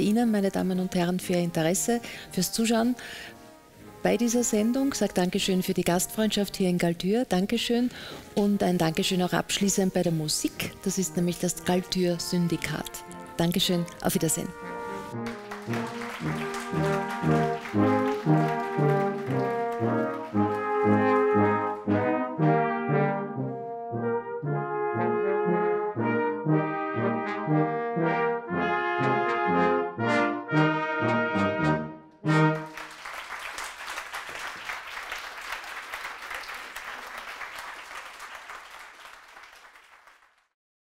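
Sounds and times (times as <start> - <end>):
brass band playing chords: 10.6 - 32.9
audience applause: 15.1 - 21.9, 32.5 - 40.5.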